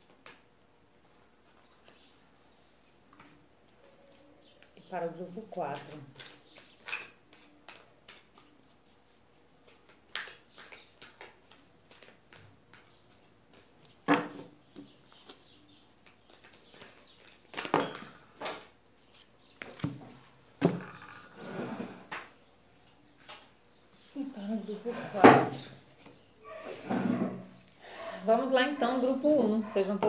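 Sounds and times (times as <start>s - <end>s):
cards being shuffled: 5.7s - 17.8s
card rustle: 15.0s - 17.8s.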